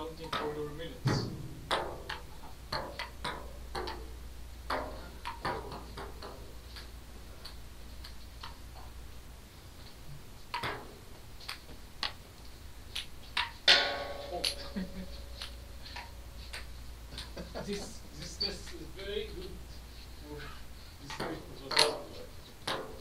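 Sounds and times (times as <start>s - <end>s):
ping-pong ball ticking: 1.6s - 9.0s.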